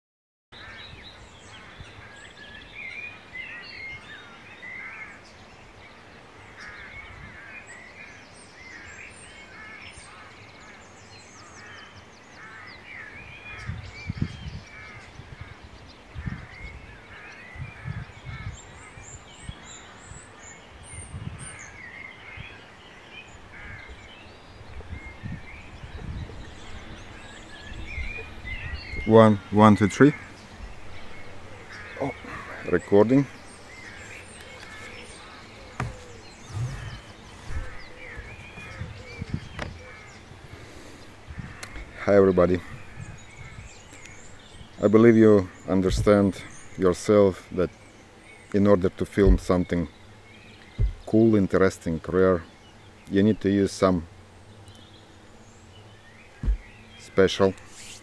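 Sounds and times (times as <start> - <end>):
birds singing and chirping: 0.5 - 58.0
low rumbles and thumps: 35.7 - 39.8, 49.2 - 49.7, 50.7 - 51.2, 56.4 - 56.7.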